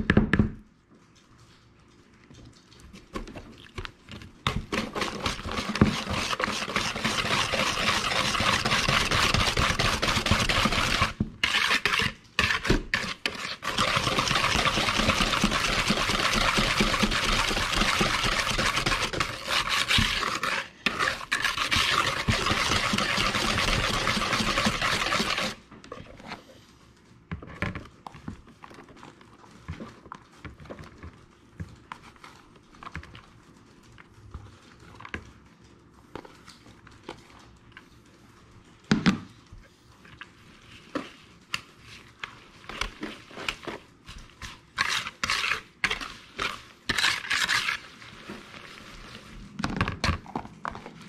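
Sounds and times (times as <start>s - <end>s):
whisk beating batter in bowl: 2.9s - 25.7s, 40.3s - 49.4s
faint handling sounds: 25.6s - 44.9s.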